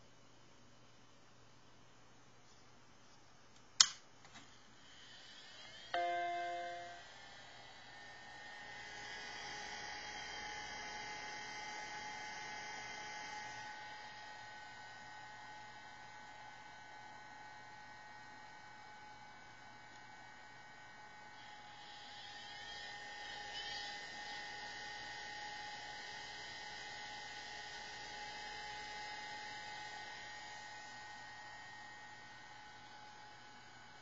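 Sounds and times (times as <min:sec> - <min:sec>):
electrical hum: 0:00.0 - 0:15.1
high whine tones: 0:04.6 - 0:13.9
hiss: 0:21.5 - 0:23.9.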